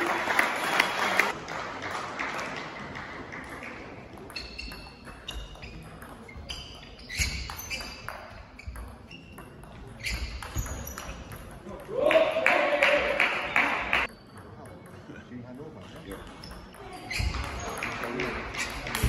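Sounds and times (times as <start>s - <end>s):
crowd noise: 0.0s - 19.0s
table tennis ball pinging: 3.4s - 11.9s.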